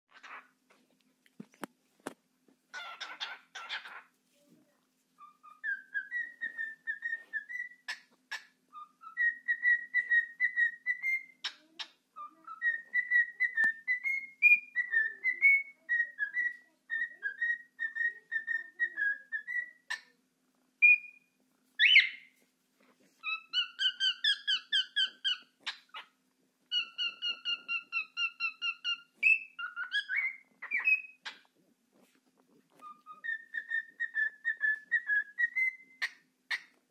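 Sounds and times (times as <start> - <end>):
cockatiel whistling: 5.2 - 11.4, 12.2 - 20.0, 20.8 - 22.3, 23.2 - 26.0, 26.7 - 31.4, 32.8 - 36.7
harsh bird chirp: 5.2 - 20.1, 20.8 - 22.4, 23.2 - 31.5, 32.8 - 36.7.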